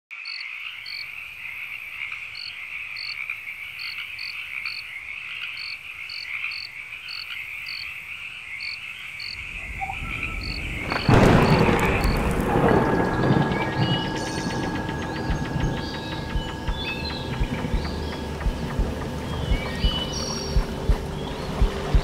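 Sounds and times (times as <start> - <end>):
high trill of frogs and insects: 0.1 - 22.0
low rumble: 9.4 - 22.0.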